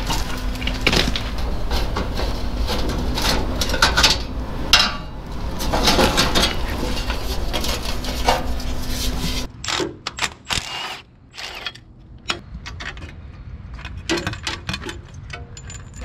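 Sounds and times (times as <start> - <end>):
sheet-metal panels clanking: 0.0 - 9.5
steady low hum: 0.0 - 9.6.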